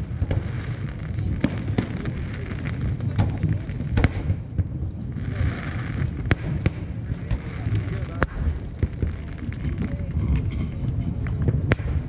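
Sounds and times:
fireworks cracks and booms: 0.0 - 12.0
low rumble: 6.0 - 12.0.

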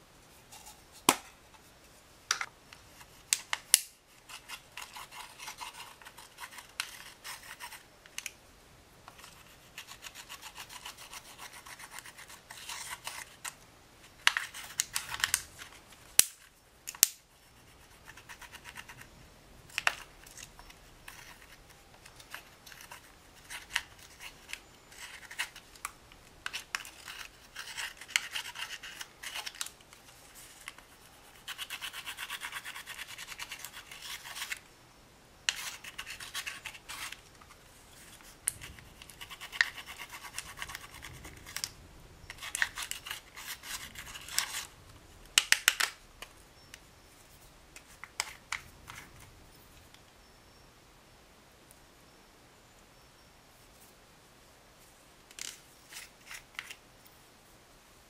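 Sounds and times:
tool scratching eyeshadow: 9.2 - 13.4, 26.5 - 29.6, 31.0 - 34.6, 35.5 - 37.2, 38.5 - 41.6, 42.3 - 44.7.

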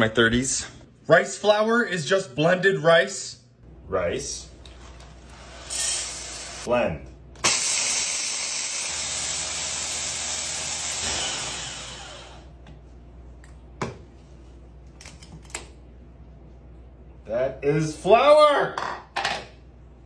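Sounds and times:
electric blender whirring: 5.2 - 6.7, 7.4 - 12.5.

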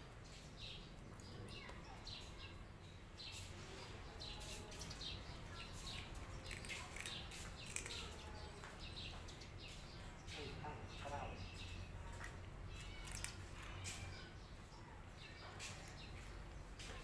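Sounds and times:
small birds chirping: 0.0 - 17.0
cat chewing crunchy snacks: 5.8 - 8.3.

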